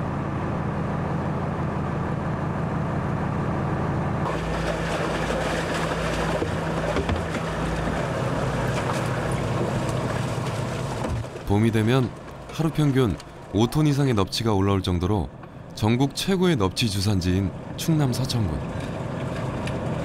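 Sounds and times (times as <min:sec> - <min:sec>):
boat engine humming: 0:00.0 - 0:20.0
hissing water splash: 0:04.3 - 0:11.4.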